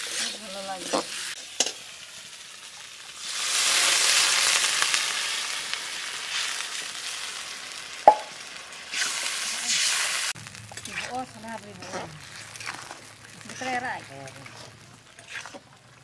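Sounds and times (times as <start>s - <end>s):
spatula scraping pan: 0.0s - 1.8s, 8.9s - 15.8s
hissing sizzle of frying: 0.0s - 16.0s
water poured into hot pan: 1.3s - 16.0s
sharp knock: 8.1s - 8.3s.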